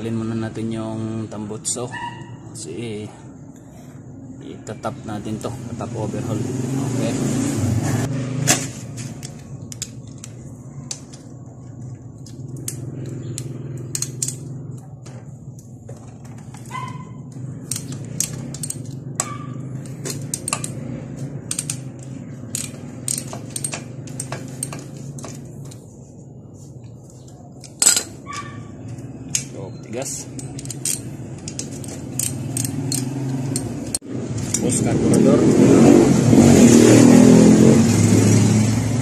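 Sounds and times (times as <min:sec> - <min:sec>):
wrench and metal parts clinking: 0:09.0 - 0:26.0, 0:26.8 - 0:35.2.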